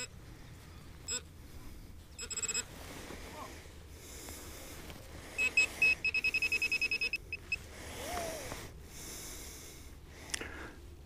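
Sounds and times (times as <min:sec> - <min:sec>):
faint rustling: 0:00.0 - 0:08.8
metal detector beeping: 0:02.2 - 0:02.7, 0:05.4 - 0:07.6.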